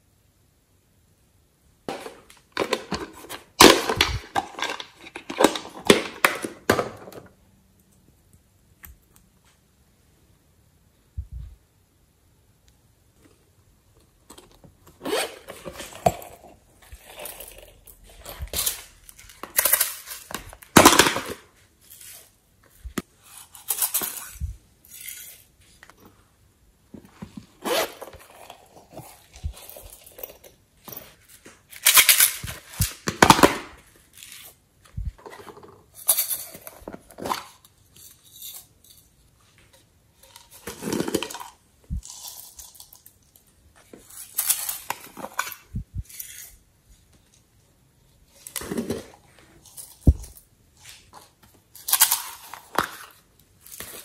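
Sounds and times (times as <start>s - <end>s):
plastic packets rustling: 15.0s - 26.0s.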